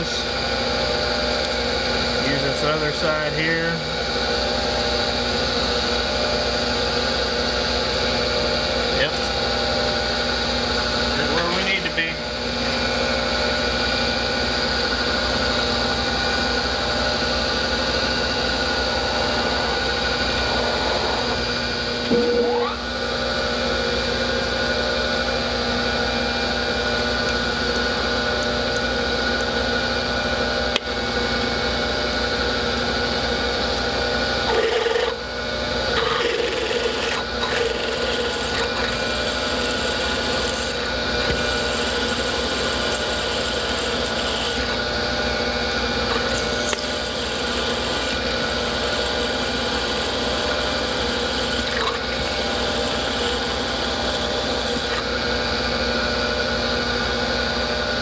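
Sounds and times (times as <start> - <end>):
milling machine spindle humming: 0.0 - 58.0
drill whining: 8.9 - 22.9, 34.4 - 44.9, 46.0 - 55.1.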